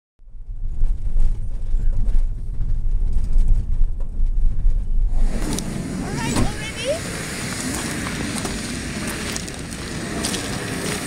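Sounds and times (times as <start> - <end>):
vehicle engine and tyres rumbling: 0.2 - 11.0
steady hiss: 5.1 - 11.0.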